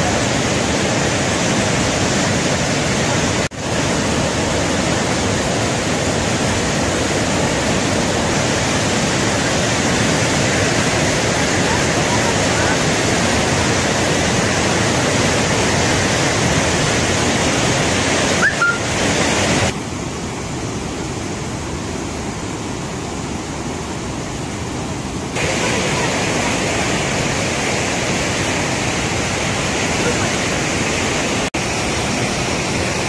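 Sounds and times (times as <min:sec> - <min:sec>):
river water rushing: 0:00.0 - 0:33.0
rising whistle-like note: 0:18.4 - 0:18.9.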